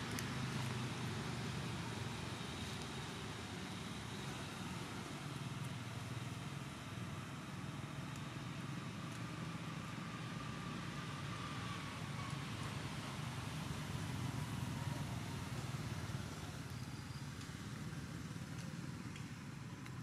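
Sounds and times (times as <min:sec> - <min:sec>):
low rumble of traffic: 0:00.0 - 0:20.0.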